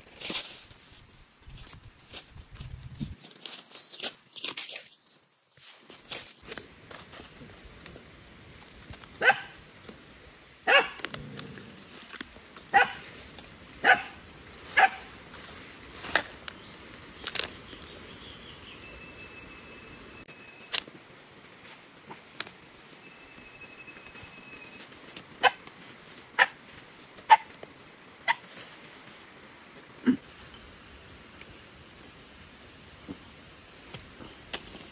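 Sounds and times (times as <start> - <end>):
dog barking: 9.2 - 9.5, 10.7 - 11.0, 12.7 - 13.0, 13.8 - 14.2, 14.8 - 15.1.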